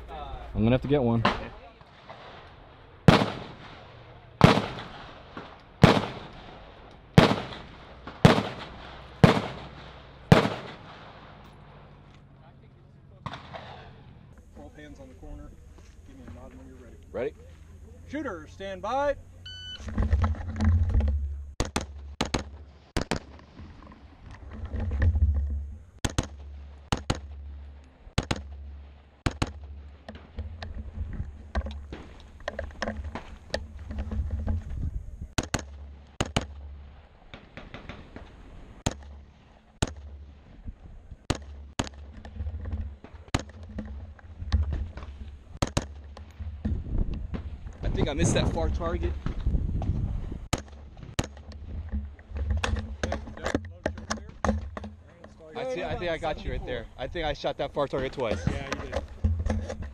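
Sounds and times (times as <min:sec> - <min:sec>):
rifle shots with echo: 0:01.2 - 0:12.0, 0:13.2 - 0:14.2, 0:35.4 - 0:39.2.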